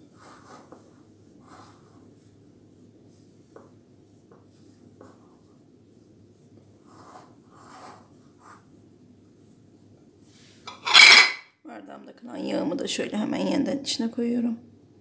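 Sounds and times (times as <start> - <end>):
dough rubbing against glass bowl: 0.0 - 3.6, 4.2 - 8.7.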